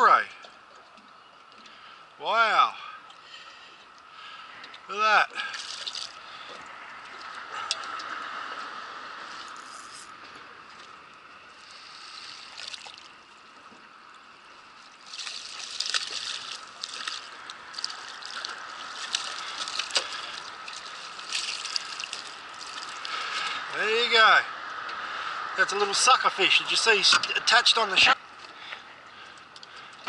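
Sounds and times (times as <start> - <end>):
water splashing and sloshing: 0.1 - 2.2, 2.8 - 23.7
water trickling from net: 5.3 - 8.1, 10.7 - 23.6.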